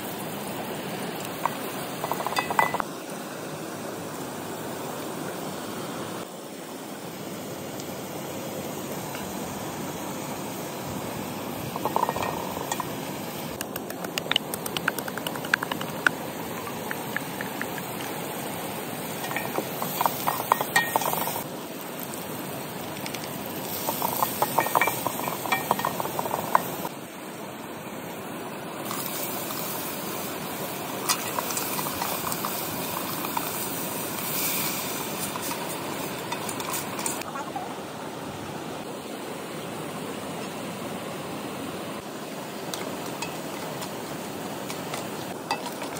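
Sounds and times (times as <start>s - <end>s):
vegetables sizzling in a pot: 0.0s - 3.0s, 7.9s - 13.6s, 14.2s - 26.9s, 28.8s - 37.3s
stream running: 0.0s - 26.9s, 28.7s - 45.9s
utensil scraping and clinking on pot: 2.0s - 2.8s, 11.8s - 13.0s, 19.2s - 21.4s, 23.7s - 26.9s, 34.2s - 37.2s.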